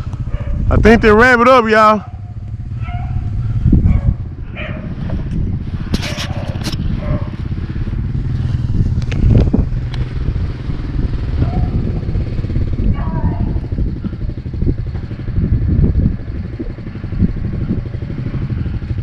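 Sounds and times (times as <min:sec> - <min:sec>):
small engine idling: 0:00.0 - 0:19.0
clicks and rustles: 0:05.2 - 0:06.9.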